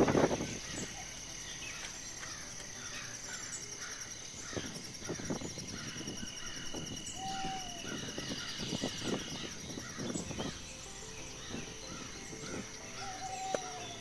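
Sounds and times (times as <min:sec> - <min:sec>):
birds calling: 0:00.0 - 0:14.0
insects trilling: 0:00.0 - 0:14.0.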